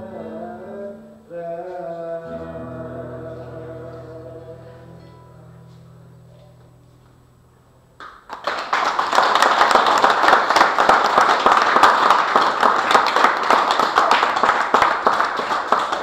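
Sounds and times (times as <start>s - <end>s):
audience applauding: 8.0s - 16.0s.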